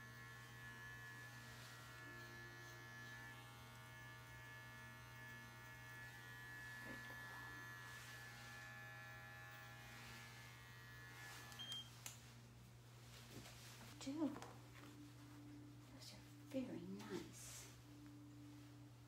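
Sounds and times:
electric clippers buzzing: 0.0 - 12.0.

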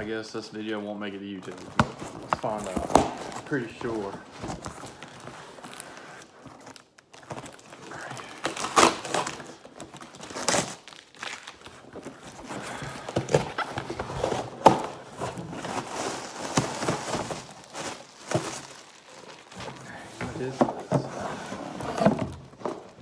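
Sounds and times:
packing material rustling: 0.0 - 23.0
packing tape ripping: 1.5 - 12.4
cardboard flaps tearing: 1.5 - 20.8.

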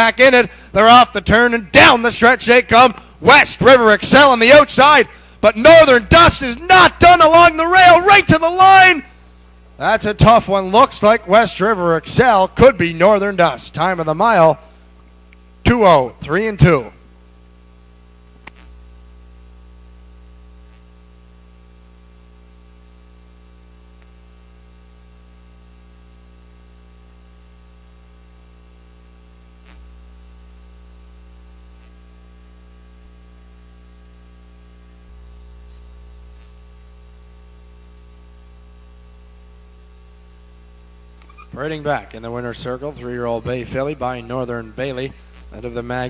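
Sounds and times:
electrical mains hum: 0.0 - 46.0
faint hiss: 39.5 - 46.0.

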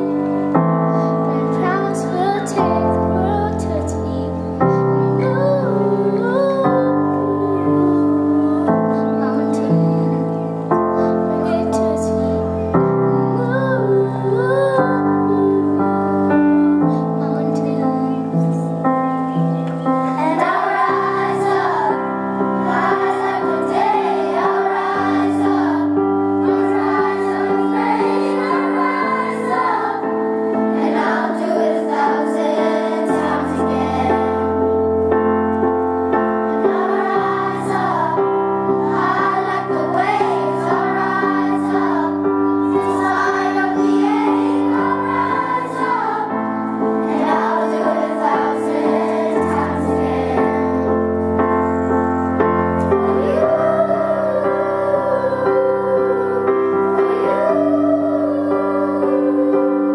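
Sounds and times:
children's choir singing: 0.0 - 59.9
sustained accompaniment chords: 6.9 - 59.9.

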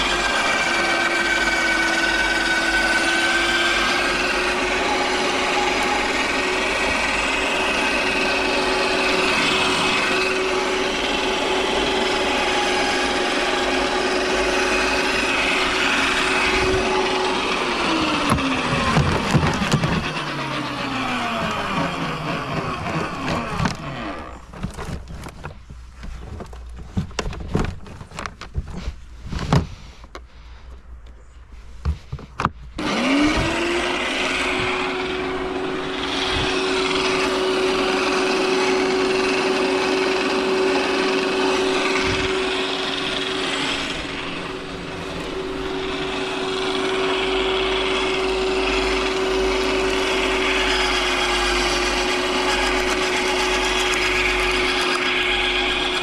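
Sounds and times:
garden shredder motor humming: 0.0 - 29.9, 31.9 - 56.0
branches knocking and rattling: 15.3 - 30.3.

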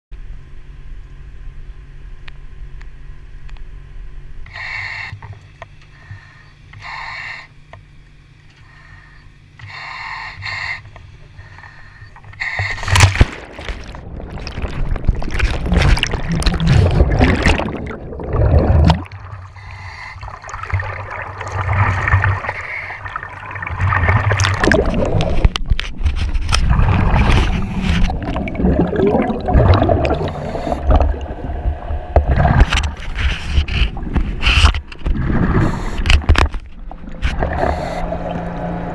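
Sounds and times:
boat engine hum: 0.2 - 38.9
exhaust bubbles gurgling: 12.1 - 38.9
water rushing and bubbling: 12.5 - 38.9.

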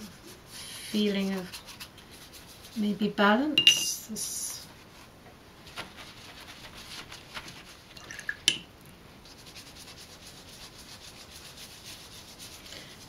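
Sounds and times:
paintbrush stroking damp paper: 0.0 - 3.0, 9.2 - 13.0
tissue dabbing wet paint: 0.0 - 3.2, 4.6 - 8.4, 9.2 - 13.0.

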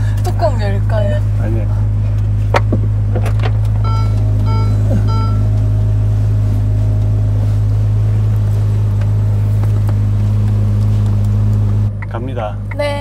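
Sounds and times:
car engine idling: 0.0 - 13.0
short electronic beep: 3.8 - 5.5.

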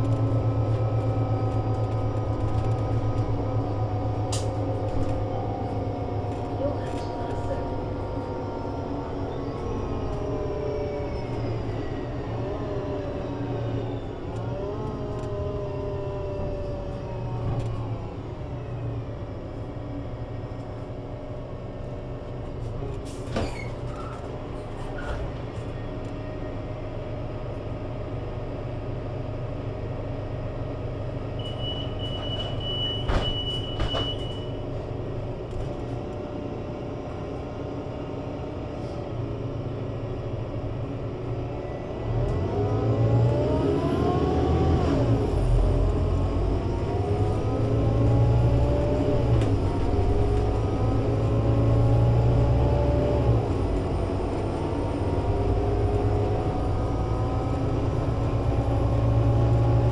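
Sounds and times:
bus engine idling: 0.0 - 42.0.

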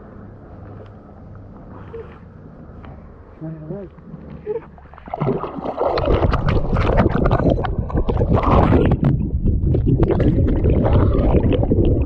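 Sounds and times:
water splashing and sloshing: 4.0 - 12.0.

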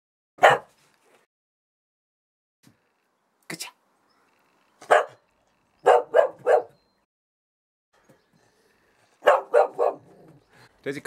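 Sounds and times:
dog barking: 0.4 - 0.7, 4.8 - 5.2, 5.8 - 6.8, 9.2 - 10.3.

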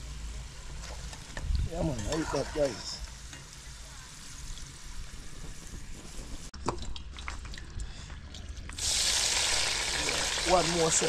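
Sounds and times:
hot oil sizzling in a pot: 0.0 - 6.5, 8.8 - 11.0
oil popping and crackling: 0.6 - 11.0.

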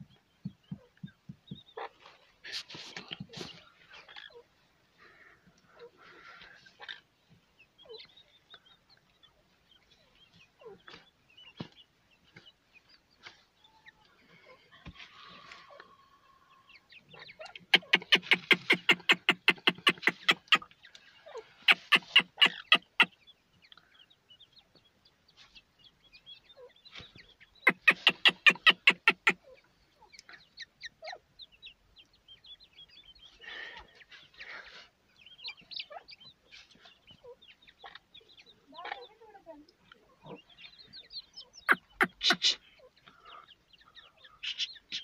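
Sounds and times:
chicks peeping: 16.5 - 45.0
hen clucking rapidly: 17.2 - 20.8, 21.5 - 23.2, 27.6 - 29.6, 41.5 - 45.0.

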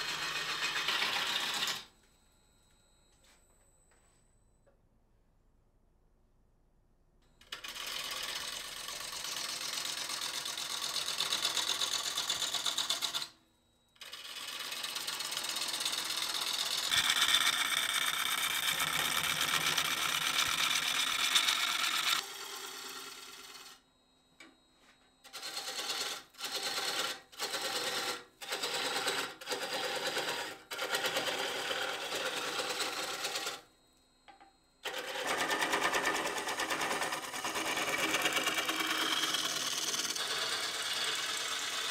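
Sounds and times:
gouge cutting spinning wood: 0.0 - 1.9, 7.5 - 13.3, 14.0 - 23.8, 25.3 - 33.6, 34.8 - 41.9.

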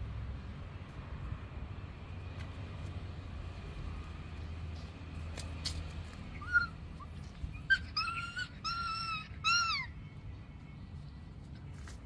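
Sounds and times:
puppy whining: 6.4 - 10.0.

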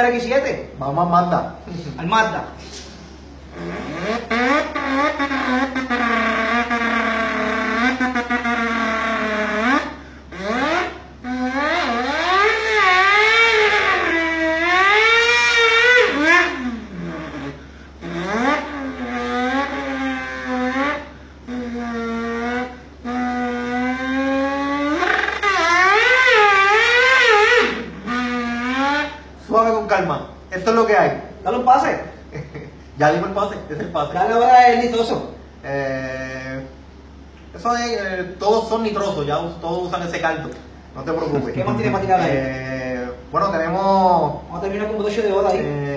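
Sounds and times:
man imitating engine with mouth: 3.5 - 29.4, 41.2 - 44.5.

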